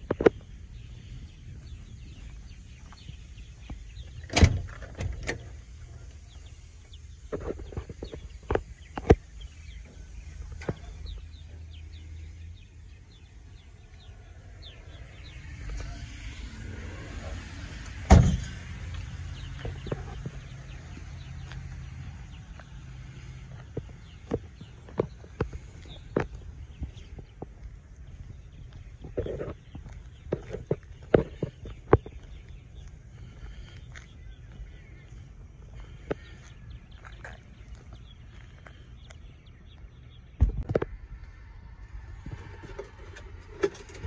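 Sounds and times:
footsteps on asphalt: 0.0s - 4.2s, 18.8s - 43.0s
birds chirping: 0.0s - 44.0s
low rumble: 0.0s - 44.0s
loud thumps: 18.0s - 18.7s, 40.4s - 41.0s.

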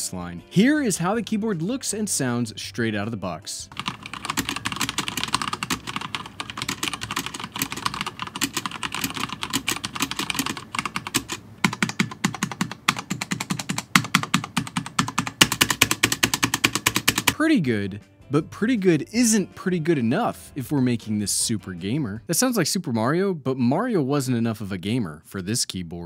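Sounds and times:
mechanical keyboard typing: 3.7s - 17.4s.

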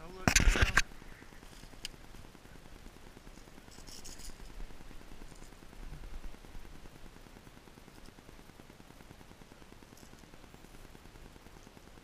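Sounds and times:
soft scraping and rustling: 0.1s - 2.0s, 3.3s - 6.2s.

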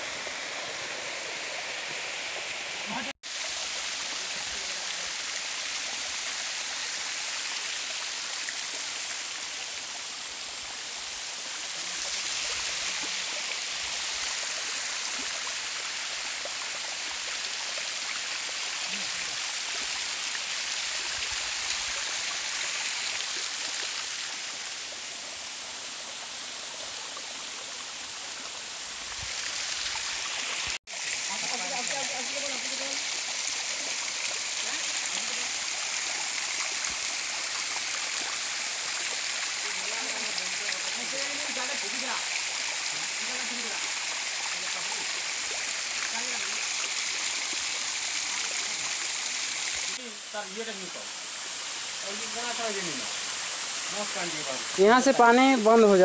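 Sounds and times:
small waterfall rushing: 0.0s - 56.0s.

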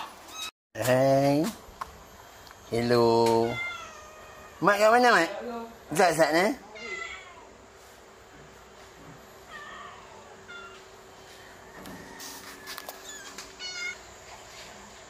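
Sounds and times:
kittens mewing: 3.4s - 5.0s, 6.6s - 7.6s, 12.9s - 14.1s.

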